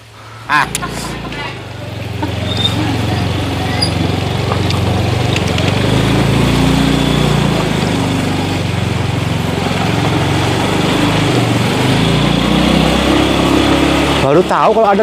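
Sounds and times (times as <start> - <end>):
small motorcycle engine idling: 0.2 - 11.9.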